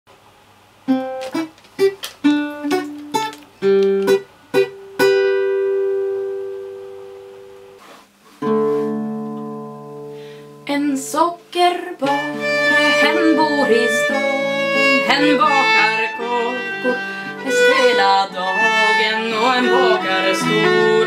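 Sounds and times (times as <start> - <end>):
plucked string melody: 0.9 - 7.8, 8.4 - 10.2, 12.0 - 21.0
ringing chord strum: 4.1 - 7.8.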